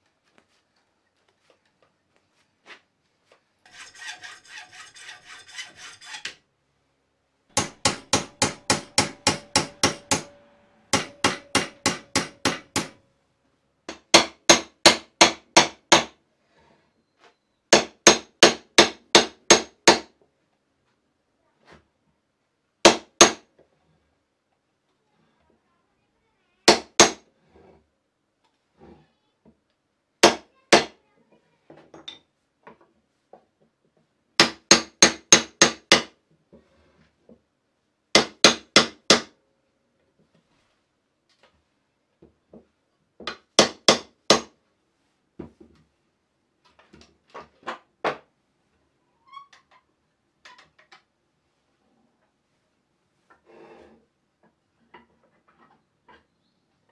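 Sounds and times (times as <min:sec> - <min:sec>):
hammer tapping metal pins: 0:07.5 - 0:13.0.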